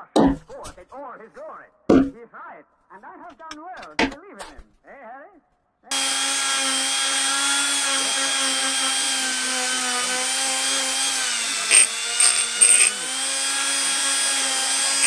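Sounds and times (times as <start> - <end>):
rotary tool high whine: 5.9 - 15.0
short scratchy bursts: 11.3 - 13.1.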